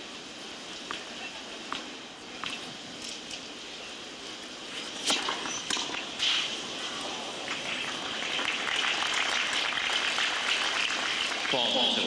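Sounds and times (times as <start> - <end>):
tennis ball racket strikes: 5.0 - 6.5
stadium crowd noise: 6.6 - 12.0.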